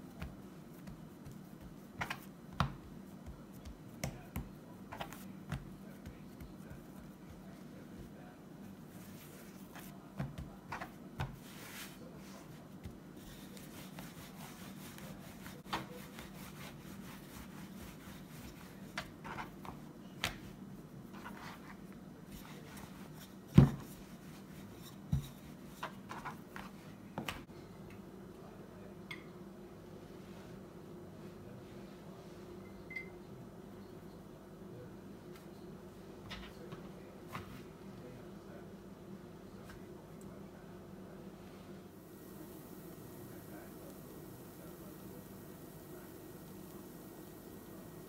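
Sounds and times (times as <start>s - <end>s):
hands patting dough: 0.0s - 27.5s
rolling pin rolling dough: 0.0s - 27.5s.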